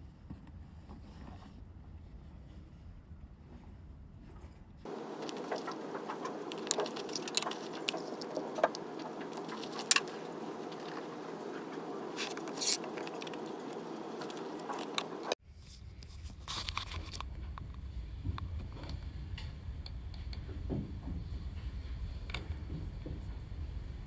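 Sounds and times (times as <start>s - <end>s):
steady room hum: 0.0s - 24.0s
objects clicking and tapping on desk: 4.9s - 11.2s.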